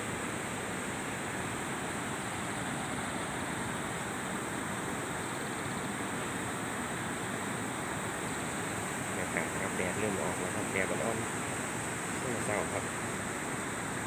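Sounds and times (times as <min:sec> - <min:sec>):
water rushing over weir: 0:00.0 - 0:14.0.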